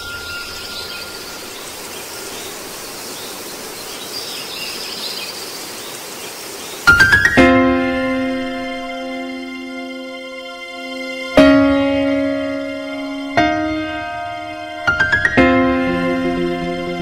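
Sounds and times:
piano-like music: 0.0 - 2.9, 6.9 - 17.0
faint high chirps: 0.0 - 4.2
steady hiss: 0.0 - 10.0.

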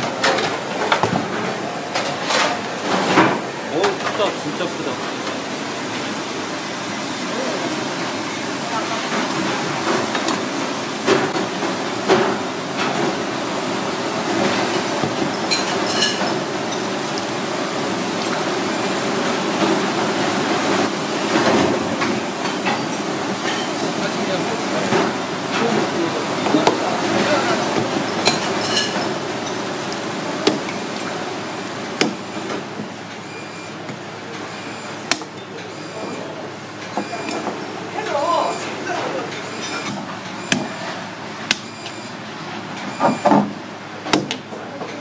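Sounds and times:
cleaver chopping on wooden block: 44.1 - 44.4.

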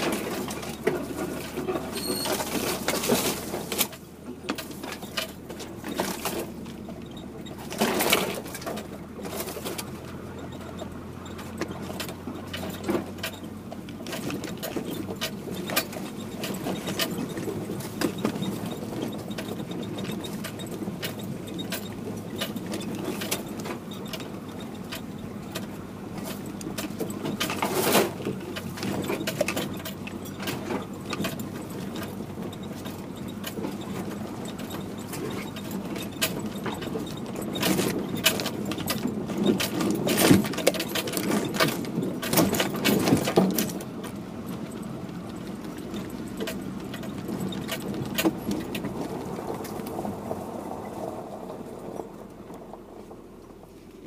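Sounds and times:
brush scraping vehicle sides: 0.0 - 54.0
vehicle engine running slowly: 0.0 - 54.0
rattles and jangling: 26.2 - 50.1.

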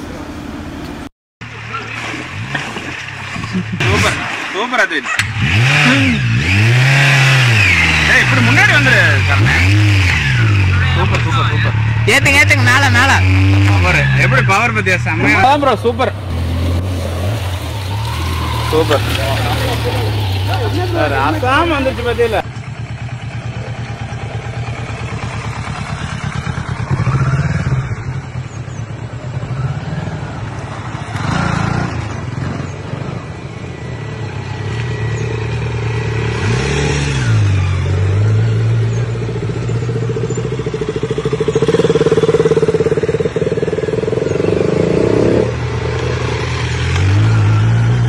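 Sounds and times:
motorcycles riding past: 1.5 - 48.0.

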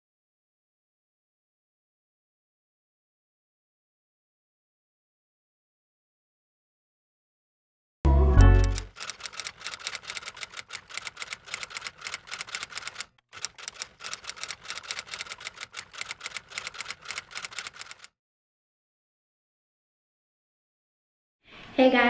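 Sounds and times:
typewriter keys clacking: 8.4 - 18.1.

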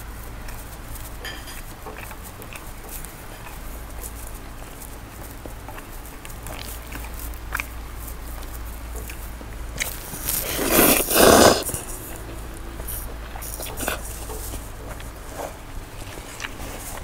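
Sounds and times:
soft chewing: 0.0 - 17.0
noodles slurped loudly: 9.7 - 12.2.

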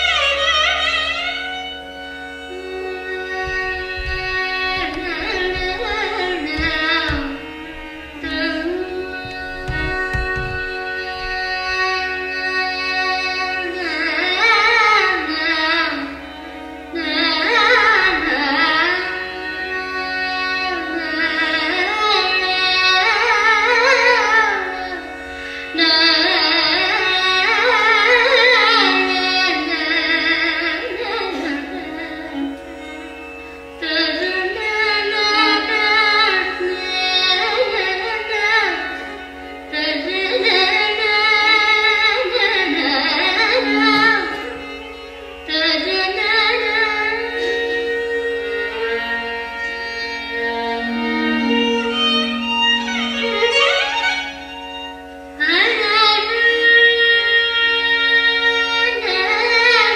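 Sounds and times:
violins playing: 0.0 - 59.9.

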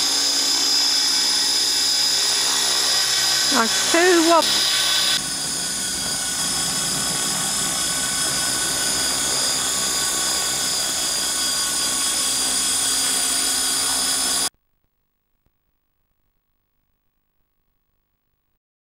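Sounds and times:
model helicopter motor whine: 0.0 - 14.5
rotor noise: 0.0 - 14.5.

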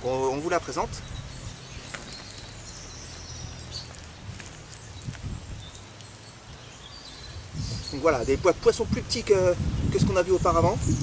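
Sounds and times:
wind rumble on microphone: 0.0 - 11.0
soft rustling: 1.8 - 6.7.

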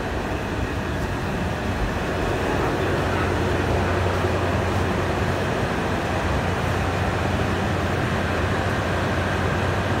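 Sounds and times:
diesel engines idling: 0.0 - 10.0.

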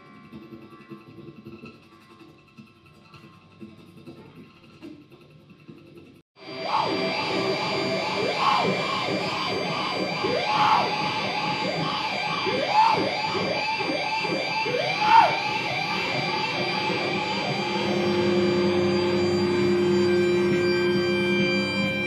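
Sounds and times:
harsh noise drone: 6.4 - 22.0.

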